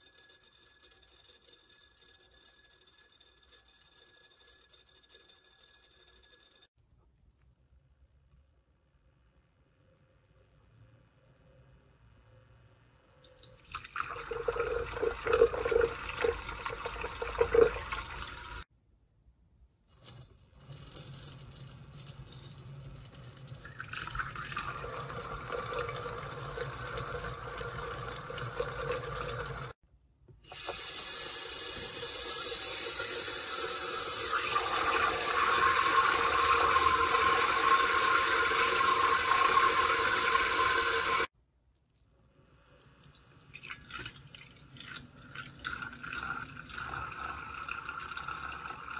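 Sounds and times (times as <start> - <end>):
water churning in glass: 13.3 - 18.6, 23.7 - 29.8, 30.7 - 41.3, 43.4 - 48.9.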